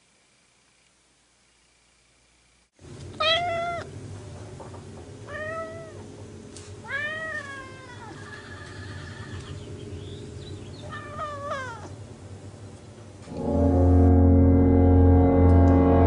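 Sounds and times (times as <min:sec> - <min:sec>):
cat meowing: 0:03.2 - 0:03.9, 0:05.3 - 0:06.0, 0:06.8 - 0:09.0, 0:10.8 - 0:11.9
low background rumble: 0:09.6 - 0:16.0.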